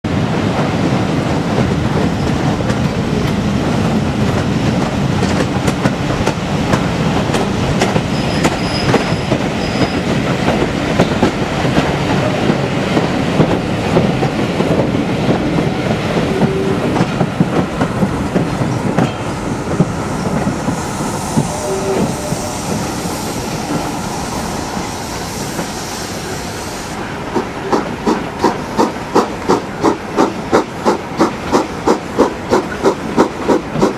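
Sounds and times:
train wheels clattering on rails: 0.1 - 33.9
steam locomotive exhaust beats: 0.2 - 33.9
wheel squeal: 8.1 - 10.1, 21.3 - 24.0.

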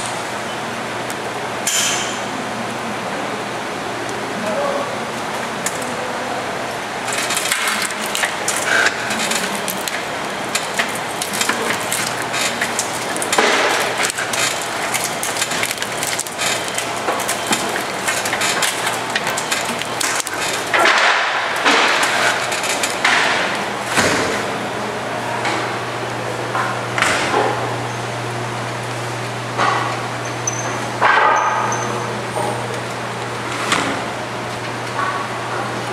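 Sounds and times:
steady machine hum: 0.0 - 35.9
boards and metal clattering: 7.1 - 24.4.

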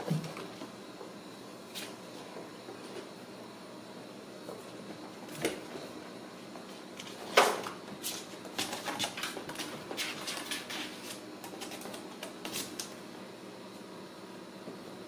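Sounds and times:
kittens scratching cardboard: 8.0 - 12.9.

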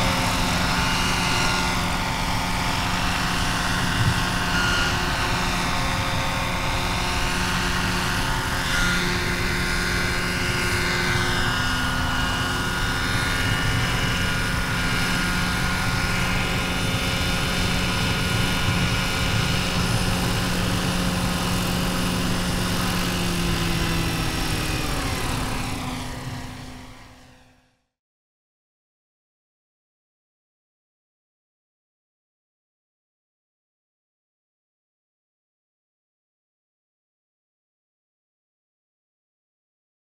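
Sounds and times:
rc helicopter rotors whining: 0.0 - 27.7.

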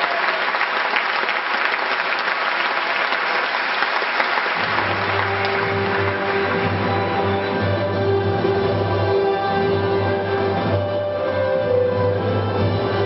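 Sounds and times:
audience applauding: 0.0 - 7.9
performance music: 0.0 - 13.0.

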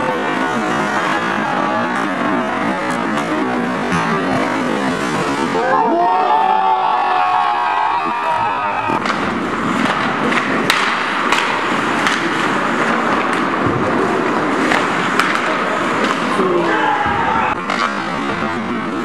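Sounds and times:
hockey sticks and puck clacking: 8.0 - 19.0
skates scraping on ice: 8.3 - 19.0.

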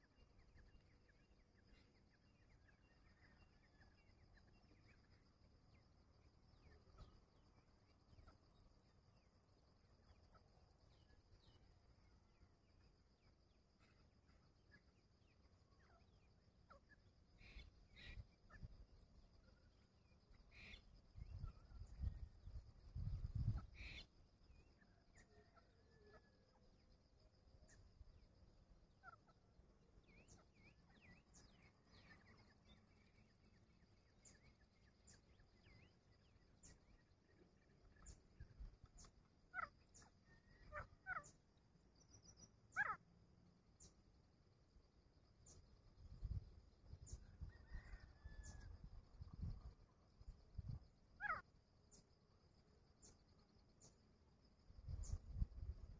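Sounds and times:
faint bird calls: 13.8 - 18.8, 20.3 - 22.1, 23.4 - 26.6, 28.9 - 33.3, 34.2 - 43.0, 47.0 - 48.8, 51.1 - 52.0.

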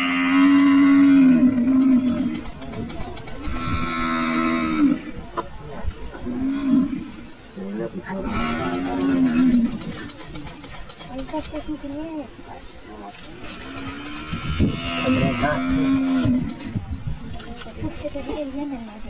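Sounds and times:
buffalo bellowing: 0.0 - 10.2, 12.6 - 17.0.

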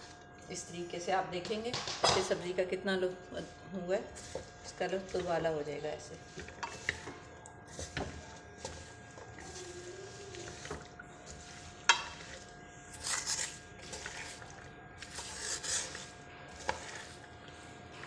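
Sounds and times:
spoon stirring carrots in a pan: 4.1 - 17.2.

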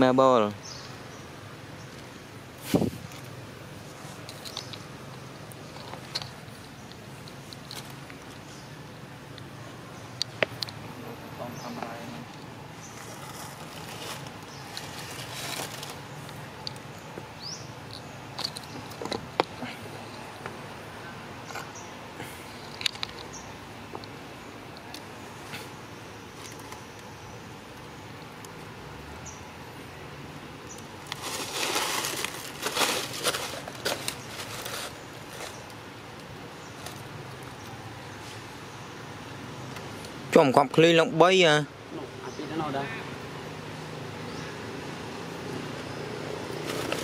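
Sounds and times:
faint steady hiss: 0.0 - 47.0
rustling and scratching: 1.8 - 8.7, 11.5 - 20.6, 30.7 - 38.5, 46.5 - 47.0
sharp crackles: 11.6 - 20.2, 30.6 - 37.8.

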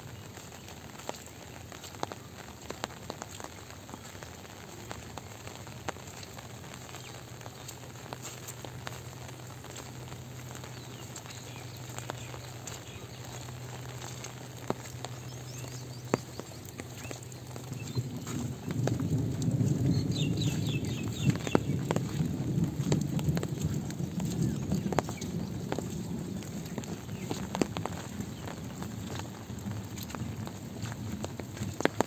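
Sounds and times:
light rain pattering: 0.0 - 32.0.

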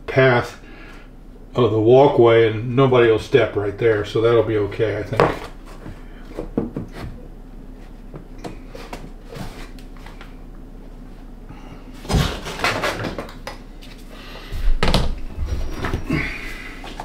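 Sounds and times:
flooring planks knocking and scraping: 5.1 - 7.2.

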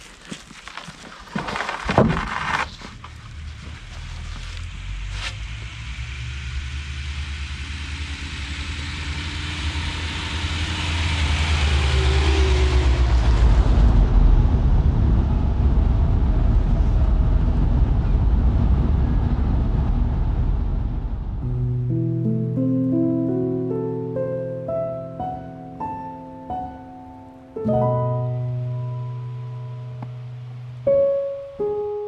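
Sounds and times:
low engine and road rumble: 0.0 - 22.5
vehicle passing on snow: 1.5 - 15.6.

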